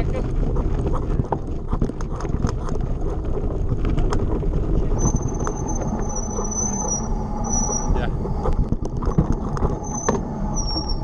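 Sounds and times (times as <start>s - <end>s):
bike rattling and clicking: 0.0s - 11.0s
bike tyres rumbling on gravel: 0.0s - 11.0s
wind on microphone: 0.0s - 11.0s
high brake squeal: 4.9s - 8.5s, 9.8s - 11.0s.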